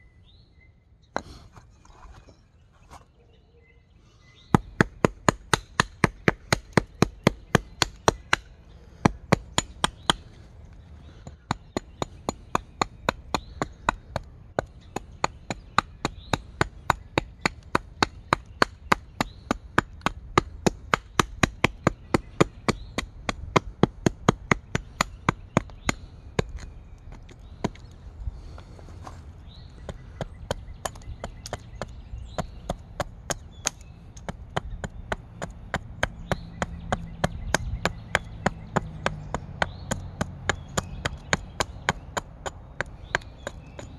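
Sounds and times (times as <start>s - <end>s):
axe chopping wood: 30.4s - 43.9s.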